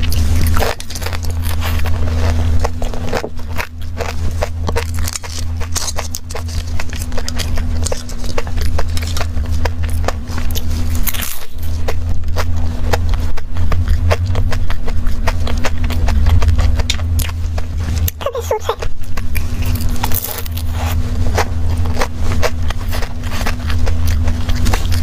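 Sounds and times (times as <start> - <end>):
crunchy pastry chewing: 0.0 - 25.0
steady low hum: 0.0 - 25.0.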